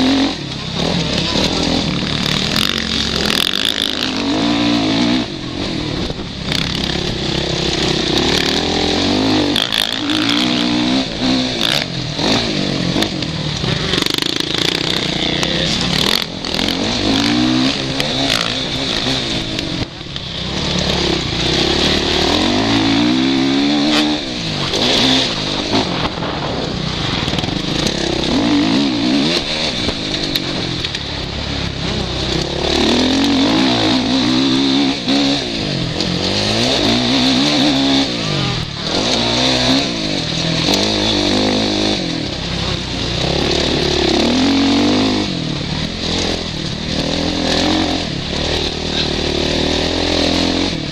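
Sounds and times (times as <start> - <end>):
motocross bike engine revving: 0.0 - 50.9
wind rushing over microphone: 21.0 - 38.4.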